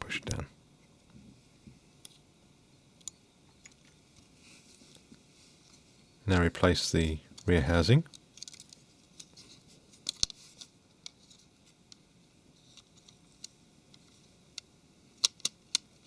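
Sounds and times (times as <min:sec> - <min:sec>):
small sharp plastic clicks: 0:14.6 - 0:15.9.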